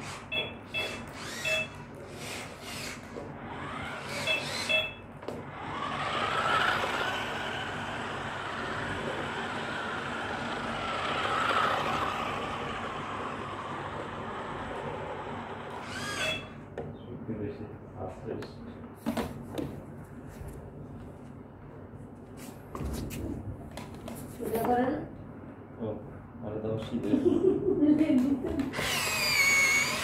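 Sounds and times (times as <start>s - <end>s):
toy car electric motors whining: 0.0s - 16.6s, 28.6s - 30.0s
short electronic beeps: 0.3s - 1.8s, 4.2s - 5.1s.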